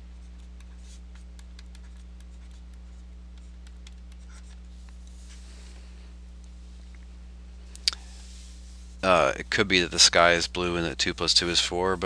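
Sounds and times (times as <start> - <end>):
steady low hum: 0.0 - 12.0
writing strokes: 0.2 - 5.4
faint taps and scratches: 0.3 - 5.4.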